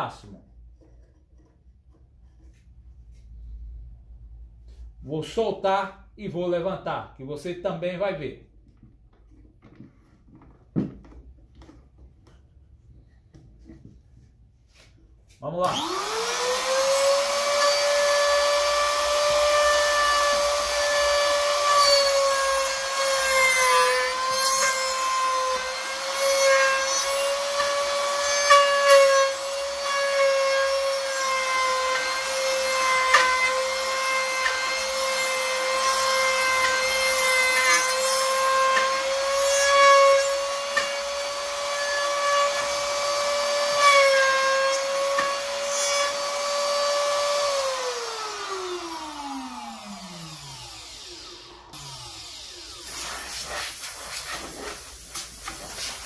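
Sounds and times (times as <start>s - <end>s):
drill bit scraping wood: 15.6s - 56.0s
electric motor whining: 15.7s - 22.1s, 44.8s - 53.3s.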